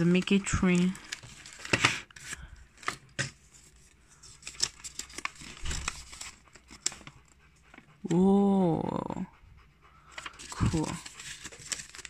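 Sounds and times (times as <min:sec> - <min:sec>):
paper packaging crinkling: 0:00.0 - 0:07.4, 0:10.1 - 0:12.0.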